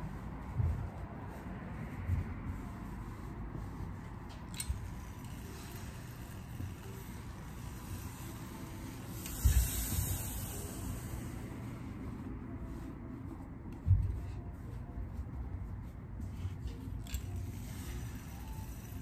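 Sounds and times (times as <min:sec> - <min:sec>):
low background noise: 0:00.0 - 0:19.0
steam hissing: 0:07.8 - 0:11.6.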